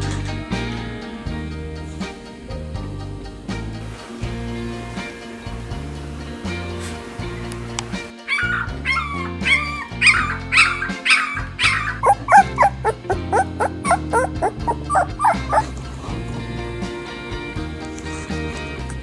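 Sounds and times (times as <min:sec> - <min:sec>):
background music: 0:00.0 - 0:19.0
puppies squeaking and whimpering: 0:08.2 - 0:16.2.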